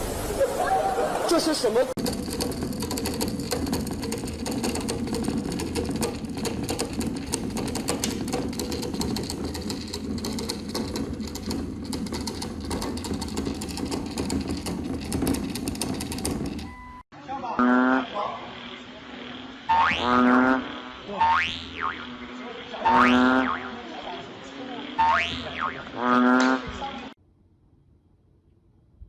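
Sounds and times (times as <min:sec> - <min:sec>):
pen plotter motor hum: 0:02.0 - 0:16.7
stepper motors ticking: 0:02.0 - 0:16.8.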